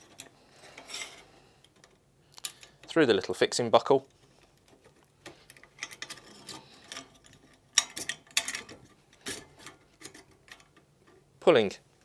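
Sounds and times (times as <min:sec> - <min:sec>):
metal strap clicking and scraping: 0:04.1 - 0:11.2.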